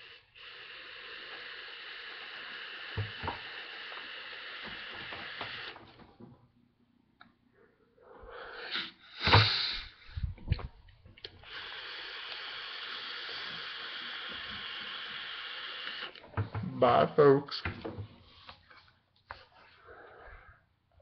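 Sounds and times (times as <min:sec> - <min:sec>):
airy hiss of air drawn: 0:00.0 - 0:05.8, 0:08.3 - 0:10.2, 0:11.4 - 0:16.2
forceful exhale: 0:07.6 - 0:10.3.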